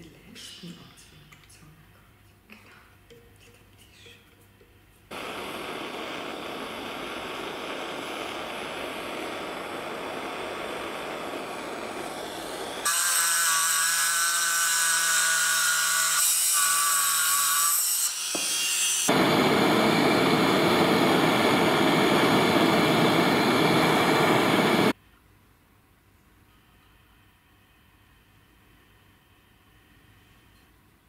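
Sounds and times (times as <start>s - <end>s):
power drill whining: 5.1s - 13.5s
gas torch hissing: 5.1s - 14.6s, 19.0s - 25.0s.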